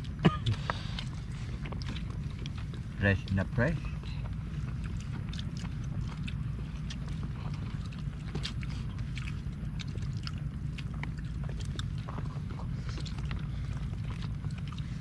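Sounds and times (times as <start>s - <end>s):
people chewing: 0.0s - 15.0s
steady low rumble: 0.0s - 15.0s.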